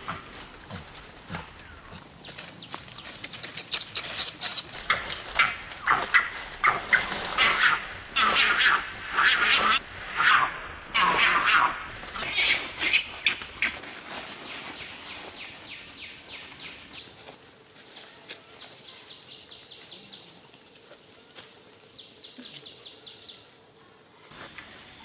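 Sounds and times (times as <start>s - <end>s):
rapid high-pitched chirps: 3.0s - 4.8s.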